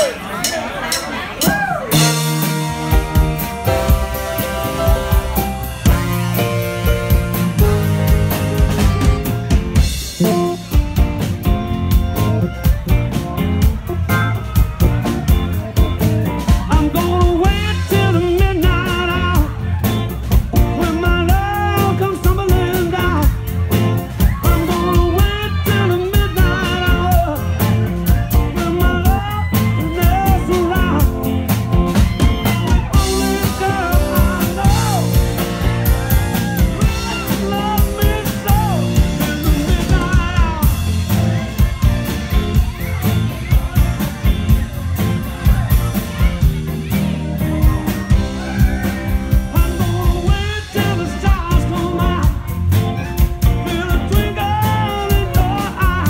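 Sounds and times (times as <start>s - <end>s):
drum beat: 0.0s - 56.0s
keyboard: 0.0s - 56.0s
electric guitar: 1.6s - 56.0s
trombone: 2.0s - 16.4s
person singing: 16.4s - 19.6s, 20.6s - 23.4s, 24.2s - 31.3s, 32.0s - 41.2s, 45.5s - 56.0s.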